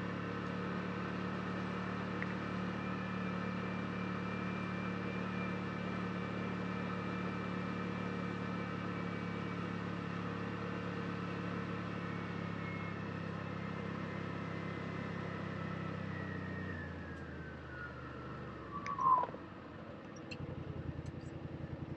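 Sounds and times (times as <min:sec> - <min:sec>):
utility vehicle engine running: 0:00.0 - 0:21.9
high thin whine: 0:18.7 - 0:19.4.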